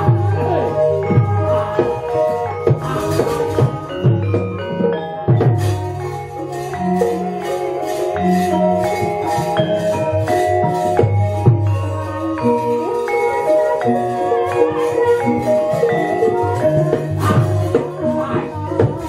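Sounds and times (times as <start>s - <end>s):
metallophones ringing: 0.0s - 19.0s
sharp percussive strikes: 0.0s - 19.0s.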